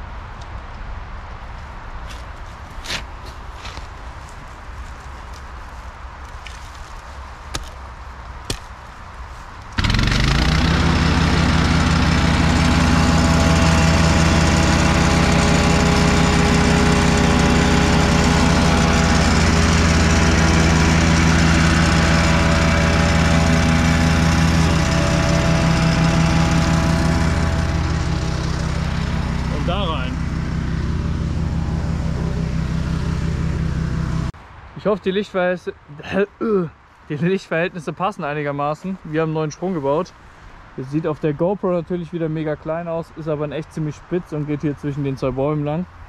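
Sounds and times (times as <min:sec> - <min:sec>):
plate compactor engine running: 0:09.8 - 0:34.3.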